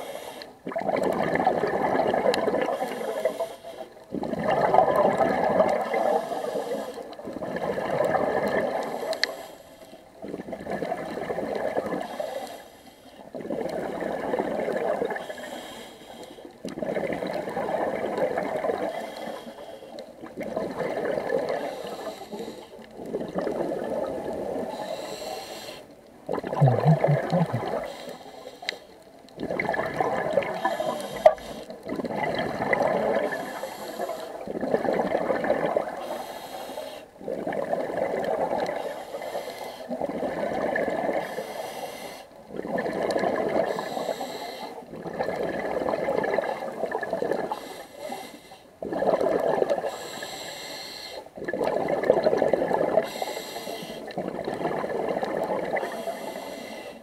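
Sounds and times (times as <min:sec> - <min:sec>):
regulator bubbling exhalation: 0:26.3 - 0:28.1.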